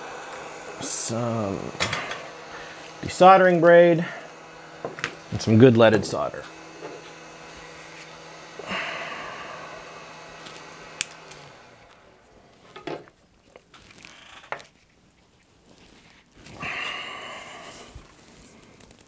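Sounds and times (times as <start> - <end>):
hiss: 0.0 - 5.0, 16.5 - 18.8.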